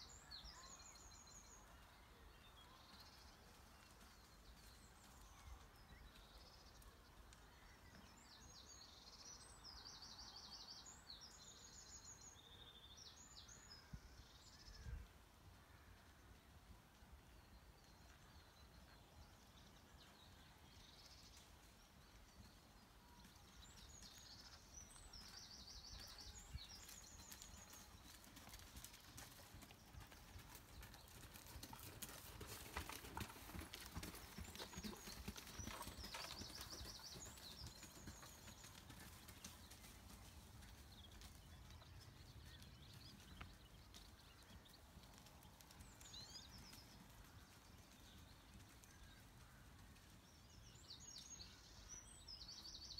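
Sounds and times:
horse hoofbeats on sand: 0:23.2 - 0:50.2.

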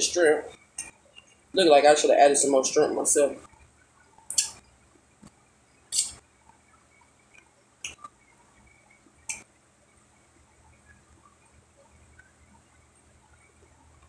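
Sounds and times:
lip-smacking and finger sucking: 0:05.9 - 0:06.2.

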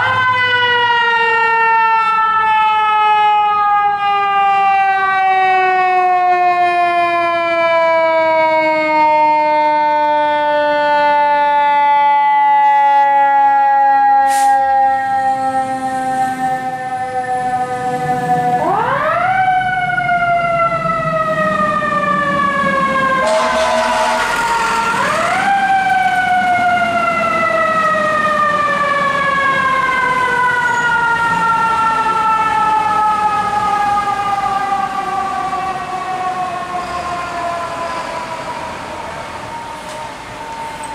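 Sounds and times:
fire truck siren wailing: 0:00.0 - 0:40.9
fire truck horn blast: 0:14.2 - 0:14.8, 0:23.2 - 0:26.2.

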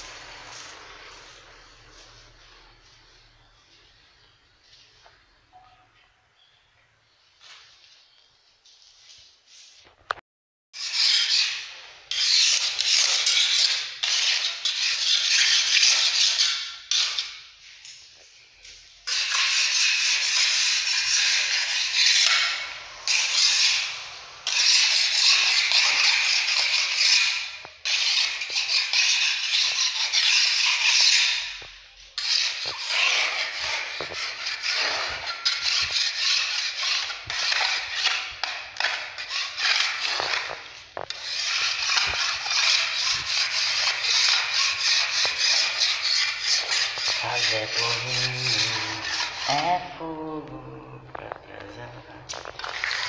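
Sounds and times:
putty knife scraping wall: 0:10.8 - 0:17.5, 0:19.1 - 0:50.0, 0:52.3 - 0:53.0.

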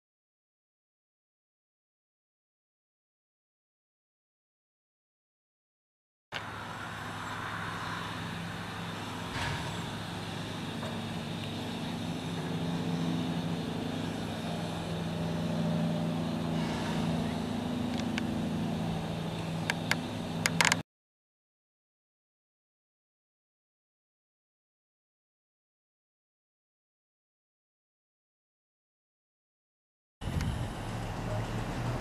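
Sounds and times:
locomotive low hum: 0:06.4 - 0:20.8, 0:30.2 - 0:32.0
sharp clicks: 0:19.4 - 0:20.8.

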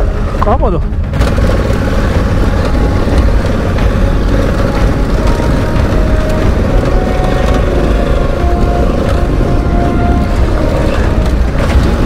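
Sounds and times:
motorcycle engine running: 0:00.0 - 0:12.0
wind rumble on microphone: 0:00.0 - 0:12.0.

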